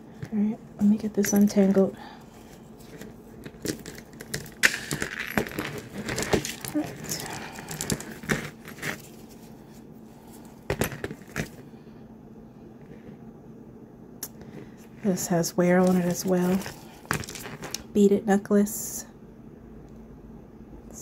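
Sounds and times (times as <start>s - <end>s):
jewelry clinking and jangling: 2.7s - 9.4s.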